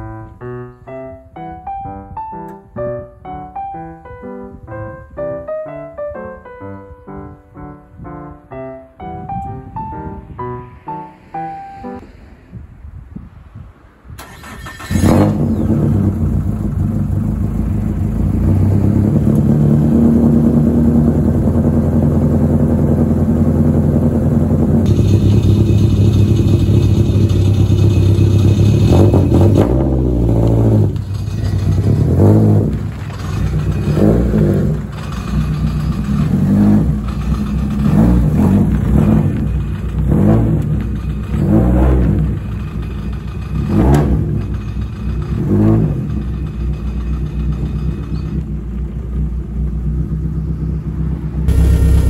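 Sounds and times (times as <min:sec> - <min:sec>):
car engine revving: 0:14.2 - 0:49.2, 0:49.8 - 0:52.0
car engine idling loudly: 0:15.5 - 0:52.0.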